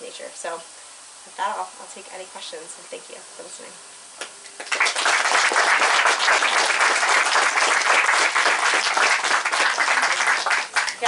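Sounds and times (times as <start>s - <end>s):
audience clapping: 4.2s - 11.0s.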